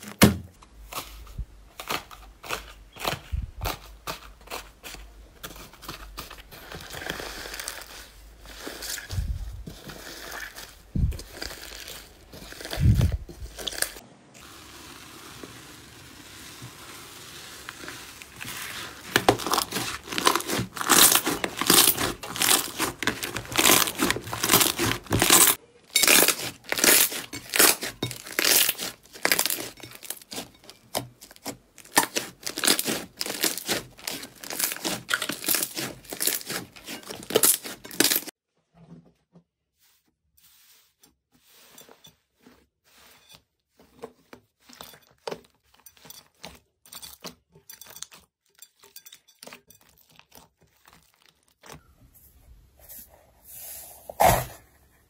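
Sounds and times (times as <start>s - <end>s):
slime crackling and popping: 11.2s - 14.0s, 17.5s - 38.3s.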